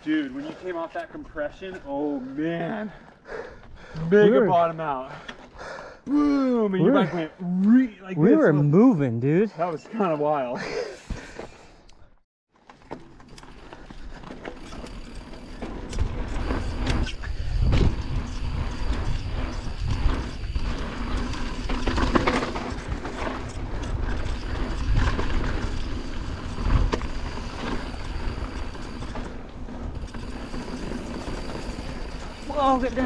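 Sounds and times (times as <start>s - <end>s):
bike rattling and knocking: 12.6s - 33.0s
bike tyre noise on dirt: 12.6s - 33.0s
wind rumble on microphone: 15.9s - 30.2s.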